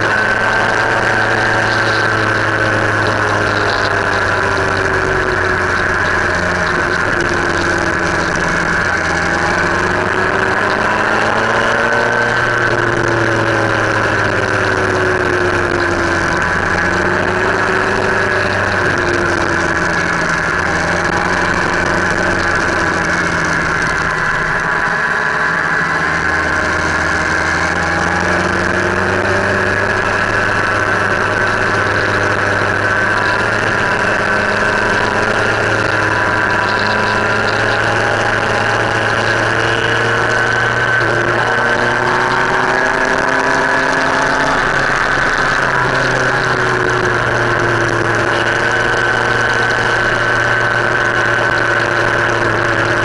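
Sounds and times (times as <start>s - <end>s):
motorcycle engine running: 0.0s - 53.0s
road and wind noise: 0.0s - 53.0s.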